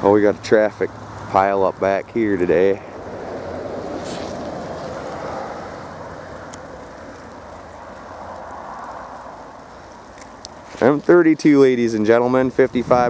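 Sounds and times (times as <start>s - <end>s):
traffic on snowy highway: 0.0s - 13.0s
blizzard wind rushing: 2.6s - 11.0s.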